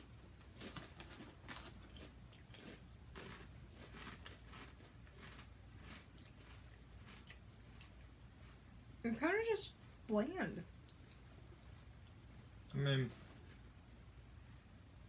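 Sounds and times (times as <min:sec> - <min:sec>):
faint crunching of crispy snacks: 0:00.4 - 0:08.6.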